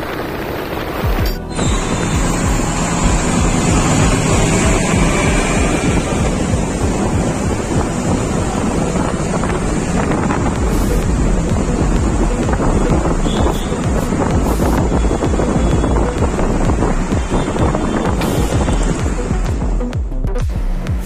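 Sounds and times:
wind rushing over microphone: 0.0s - 19.6s
road and traffic noise: 0.0s - 21.0s
steady low rumble: 0.0s - 21.0s.

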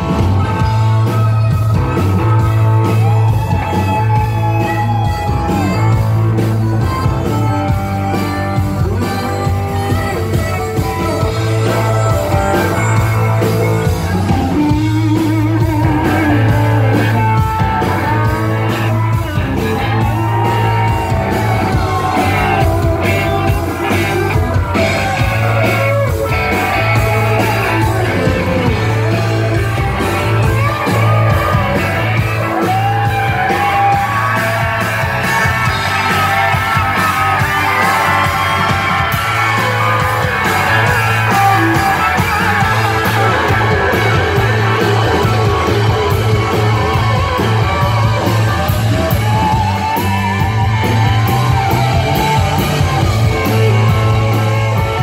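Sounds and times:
live rock band playing: 0.0s - 55.0s
man singing and shouting: 39.4s - 50.0s.

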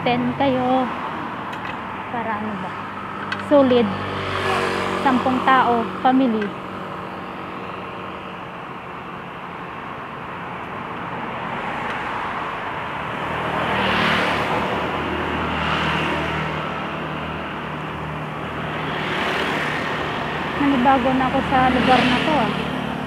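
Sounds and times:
passing traffic rushing: 0.0s - 23.0s.

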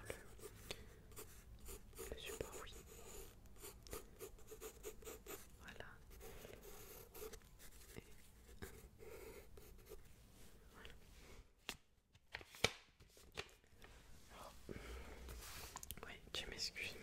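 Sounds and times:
pencil scratching: 0.1s - 10.1s.

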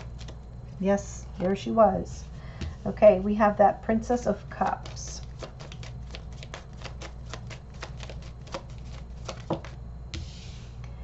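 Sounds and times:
cards being shuffled: 0.0s - 0.4s, 4.6s - 10.3s.

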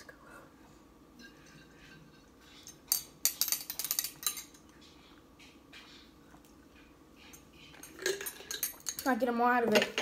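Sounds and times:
metal spoon clinking in glass bottle: 7.3s - 9.1s.

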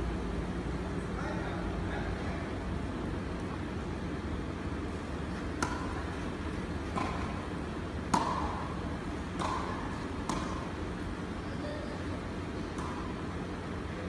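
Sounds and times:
tennis ball hit with rackets: 5.3s - 10.8s, 12.6s - 13.2s.

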